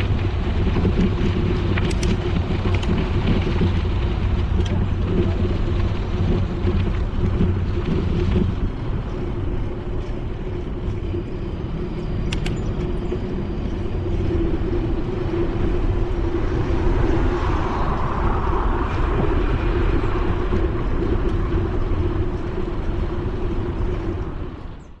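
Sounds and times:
wind and bicycle rolling noise: 0.0 - 25.0
car passing: 13.3 - 24.8.

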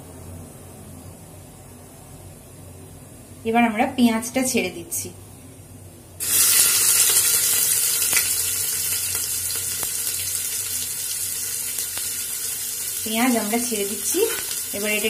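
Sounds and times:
onions sizzling in hot oil: 6.2 - 15.0.

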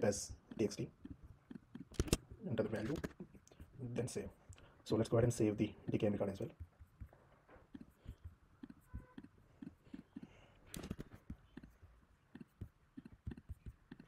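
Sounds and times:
computer mouse clicks: 1.5 - 2.2.

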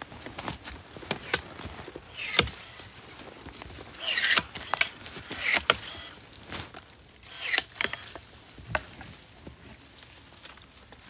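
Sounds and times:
footsteps crunching dry leaves: 0.0 - 7.1.

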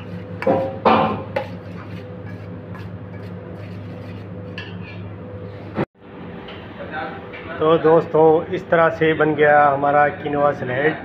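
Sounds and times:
spoon scraping a metal bowl: 0.0 - 5.1.

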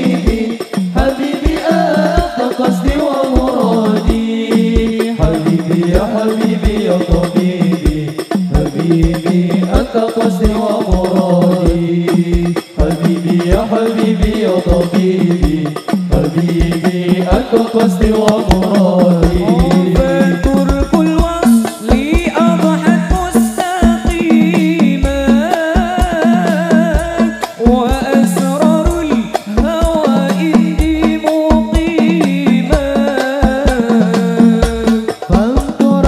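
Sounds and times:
male group chanting: 0.0 - 7.8, 8.8 - 24.7
frame drums beat: 0.0 - 36.0.

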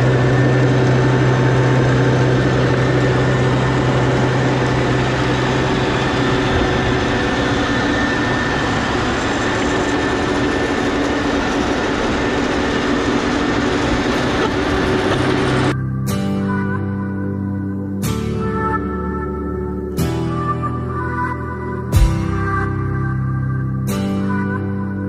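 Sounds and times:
tractor engine hum: 0.0 - 15.8.

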